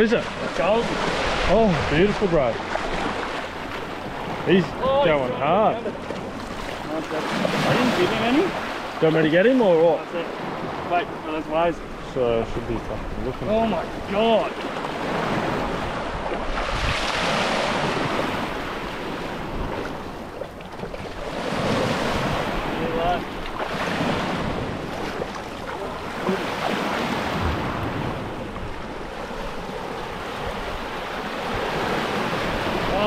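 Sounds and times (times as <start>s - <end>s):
wind noise on microphone: 15.1s - 20.0s.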